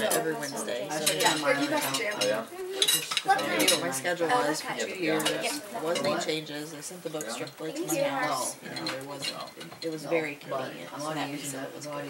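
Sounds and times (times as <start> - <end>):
cutlery clinking on plates: 0.0 - 4.0, 5.1 - 6.3, 8.6 - 10.0
indistinct chatter: 0.0 - 12.0.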